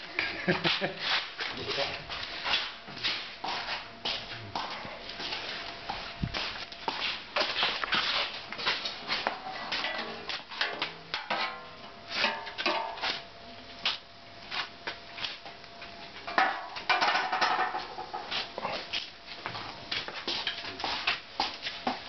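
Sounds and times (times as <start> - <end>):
fire tongs and pots clinking: 7.4 - 13.2, 15.8 - 18.5, 20.3 - 20.8.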